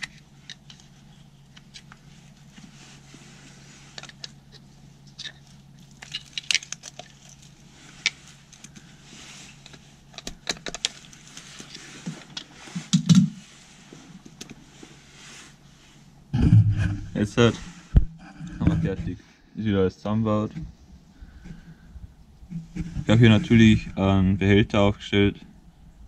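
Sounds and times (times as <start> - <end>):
low hum: 0.0 - 26.0
low thump: 16.4 - 17.2.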